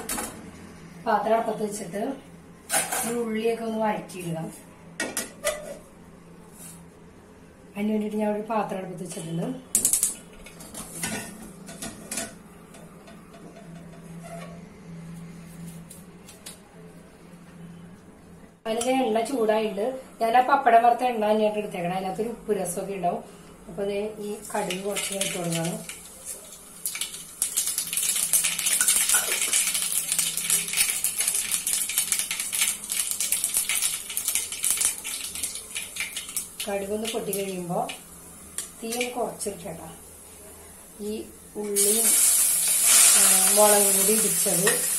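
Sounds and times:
seeds popping in hot oil: 0:26.8 - 0:38.0.

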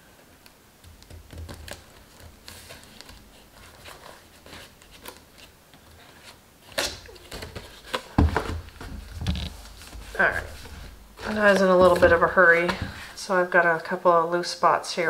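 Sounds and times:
cardstock rustling and scraping: 0:01.4 - 0:13.2
box thumping on mat: 0:07.4 - 0:09.1.

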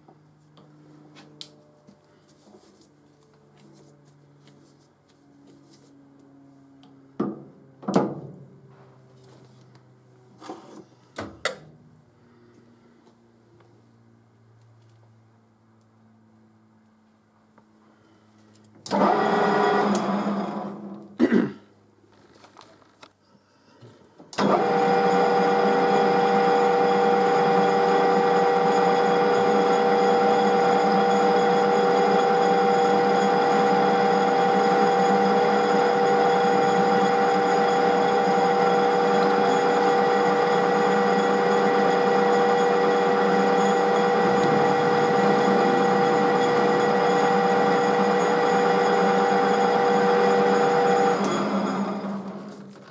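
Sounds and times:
metal lathe whining: 0:18.9 - 0:20.9, 0:24.4 - 0:52.9.

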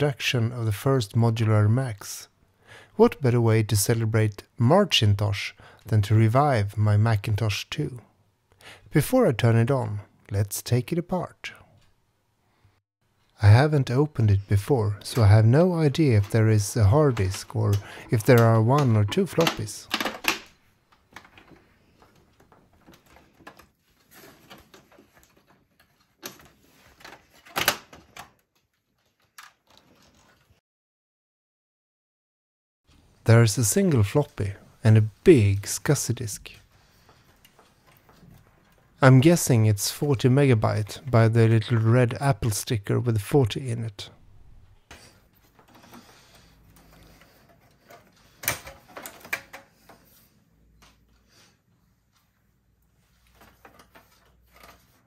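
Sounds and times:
plastic and metal parts clicking: 0:17.1 - 0:30.5, 0:44.9 - 0:50.0.

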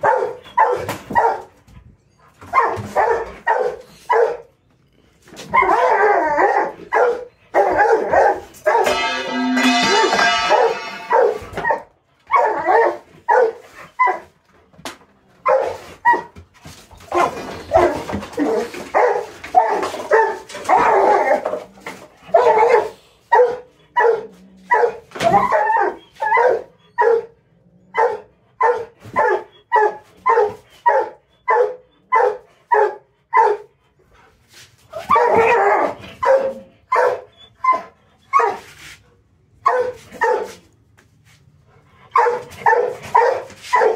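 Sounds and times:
dog barking: 0:00.0 - 0:01.5, 0:02.5 - 0:04.5, 0:05.6 - 0:09.2, 0:09.9 - 0:14.2, 0:15.4 - 0:16.3, 0:22.3 - 0:33.7, 0:35.0 - 0:38.6, 0:39.6 - 0:40.6, 0:42.1 - 0:43.9.

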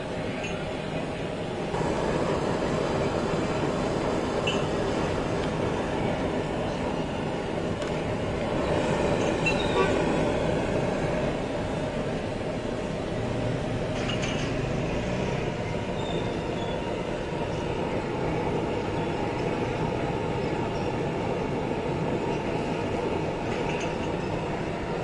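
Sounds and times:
gas burner flame roaring: 0:00.0 - 0:25.0
milk tea boiling: 0:01.7 - 0:13.9.

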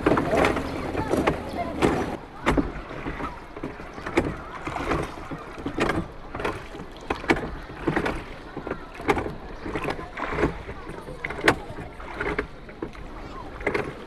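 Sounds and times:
steady rumbling background noise: 0:00.0 - 0:07.8.

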